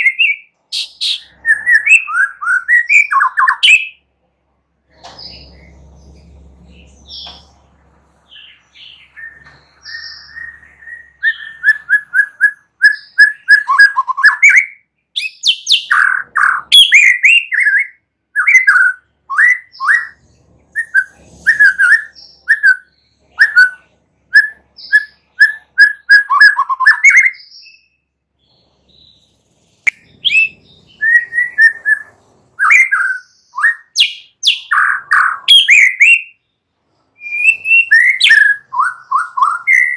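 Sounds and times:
bird singing whistled notes: 0:00.0 - 0:04.0, 0:08.3 - 0:36.4, 0:37.2 - 0:39.9.

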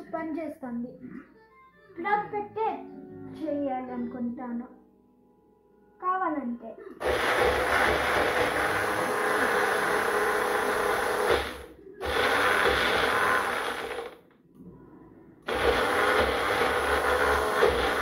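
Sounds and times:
blender grinding: 0:07.0 - 0:14.3, 0:15.5 - 0:18.0.

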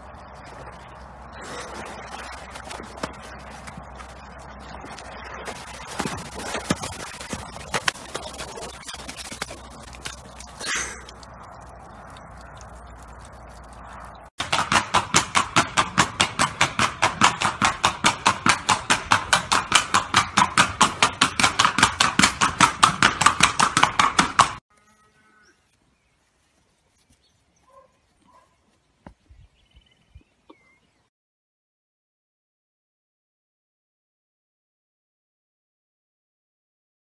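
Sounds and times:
horse hooves on pavement: 0:02.0 - 0:24.6.

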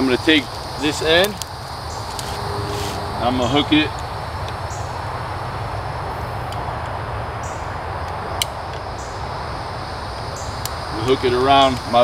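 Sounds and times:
insect chirps: 0:00.0 - 0:06.5, 0:07.1 - 0:12.0
low outdoor rumble: 0:01.4 - 0:06.8.

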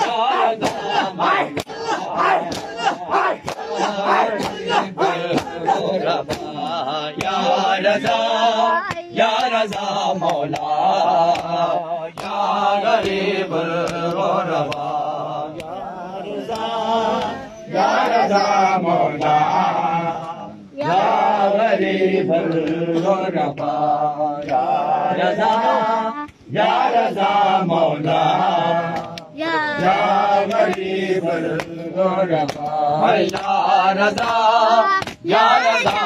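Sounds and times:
chest-beating slaps: 0:00.0 - 0:15.0, 0:28.9 - 0:30.9, 0:31.5 - 0:31.8, 0:32.4 - 0:36.0
men chanting in unison: 0:00.0 - 0:36.0.

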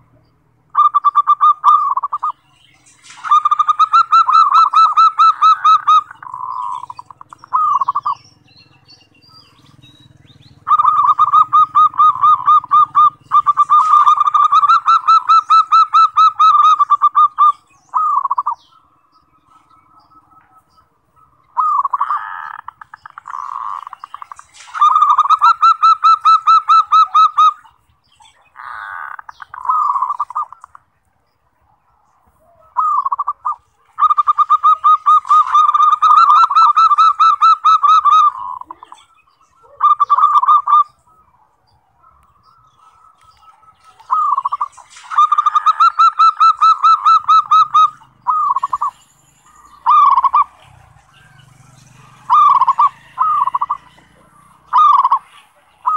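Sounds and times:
dove trilling coos: 0:00.0 - 0:31.0, 0:31.6 - 0:55.9.

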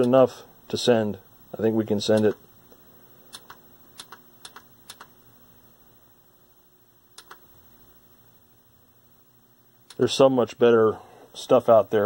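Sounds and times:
faint steady hum: 0:00.0 - 0:12.0
push buttons clicking: 0:03.3 - 0:05.1, 0:07.2 - 0:07.4.

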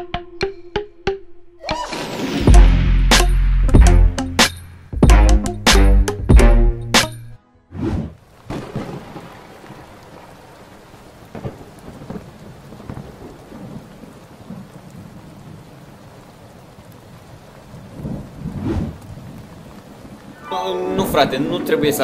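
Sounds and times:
music track: 0:00.0 - 0:07.6, 0:20.3 - 0:22.0
steady rain: 0:08.2 - 0:22.0
thunder rolling: 0:08.4 - 0:10.3, 0:11.3 - 0:15.6, 0:17.7 - 0:21.4.

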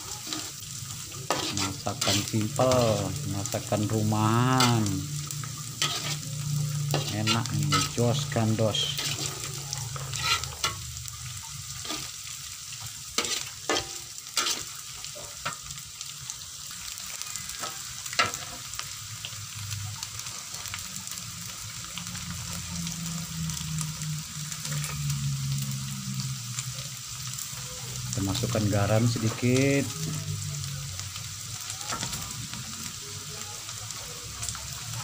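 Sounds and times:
metal spatula scraping a wok: 0:00.0 - 0:12.3, 0:13.1 - 0:15.7, 0:17.6 - 0:18.6
food sizzling in a wok: 0:00.0 - 0:35.0.

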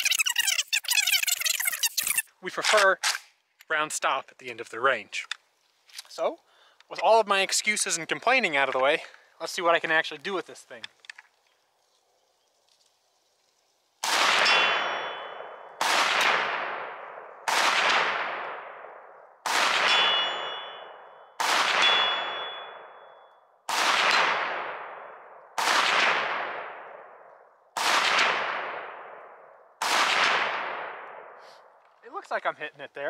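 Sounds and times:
pistol shots with echo: 0:14.0 - 0:27.2, 0:27.8 - 0:31.4
metallic ring of steel targets: 0:14.3 - 0:15.7, 0:19.7 - 0:23.3.

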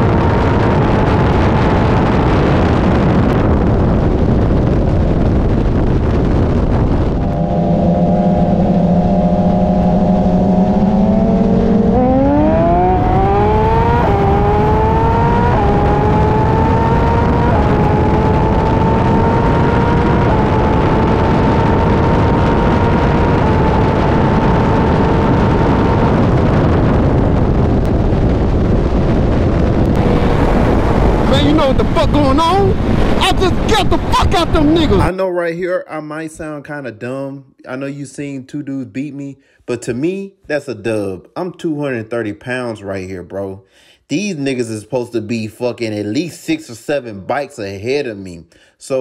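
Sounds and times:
motorcycle engine accelerating: 0:00.0 - 0:35.1
wind rush: 0:00.0 - 0:35.1.

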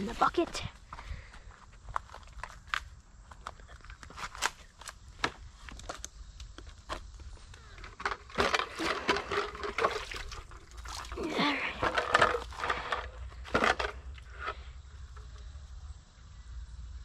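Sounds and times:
water splashing and sloshing: 0:08.0 - 0:14.4.

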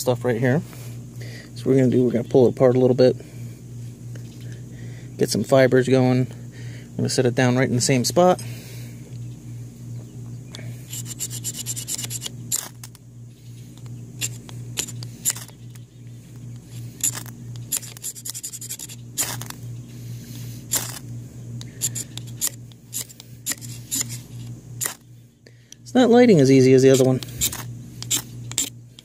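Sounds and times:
knife scraping fire-starter rod: 0:10.8 - 0:13.0, 0:14.2 - 0:15.7, 0:16.5 - 0:19.6, 0:20.3 - 0:25.0, 0:26.8 - 0:28.8.

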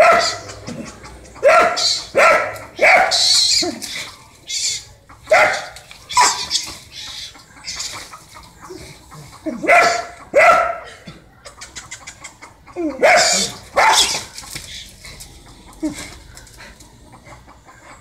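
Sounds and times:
dog barking and snarling: 0:00.0 - 0:04.2, 0:05.3 - 0:06.7, 0:08.6 - 0:11.1, 0:12.8 - 0:17.5.

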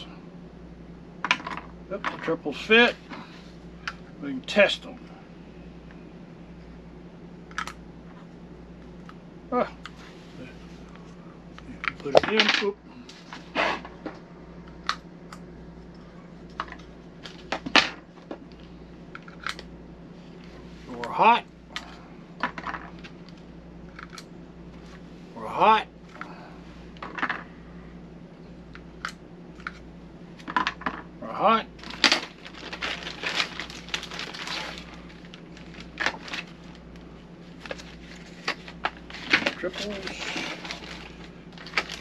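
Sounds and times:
packaging rustling: 0:31.8 - 0:42.0.

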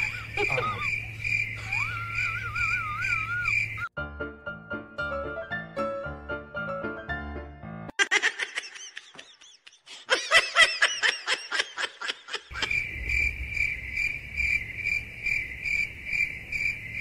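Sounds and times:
high-pitched giggling: 0:00.0 - 0:01.0, 0:01.6 - 0:03.6
cricket chirping: 0:00.0 - 0:03.9, 0:12.5 - 0:17.0.

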